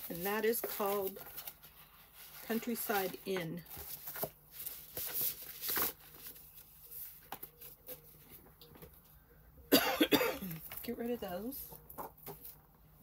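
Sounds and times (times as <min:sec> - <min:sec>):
paper rustling: 0:00.0 - 0:09.0
person coughing: 0:09.7 - 0:10.6.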